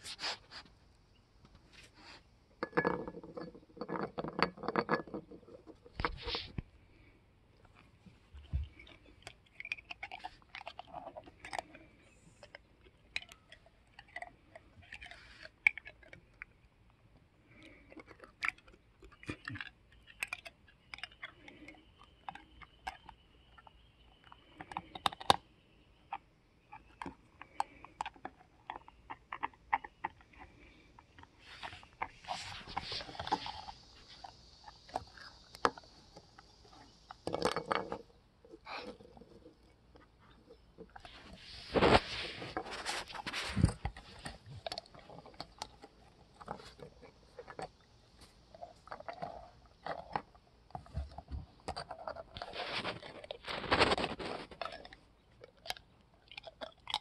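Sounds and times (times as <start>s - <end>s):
dog chewing hard object: 8.3s - 16.6s, 26.6s - 47.9s, 48.5s - 57.0s.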